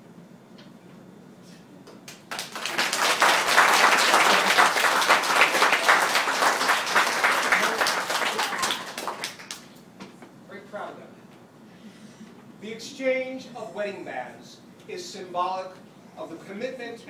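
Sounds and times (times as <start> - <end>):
guests clapping: 2.0 - 9.8.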